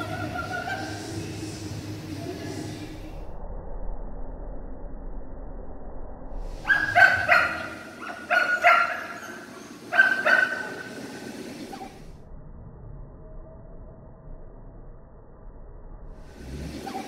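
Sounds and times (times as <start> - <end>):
small dog barking: 6.6 - 10.9.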